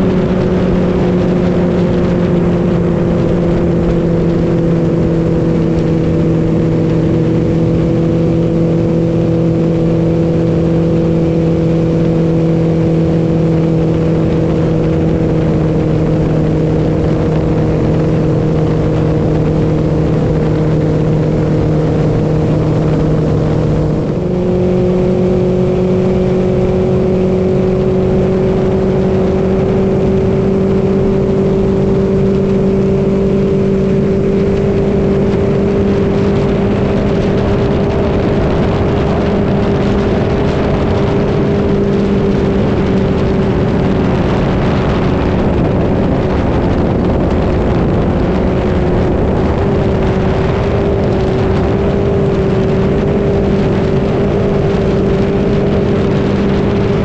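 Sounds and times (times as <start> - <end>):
outboard motor running: 0.0 - 57.0
water rushing against hull: 0.0 - 57.0.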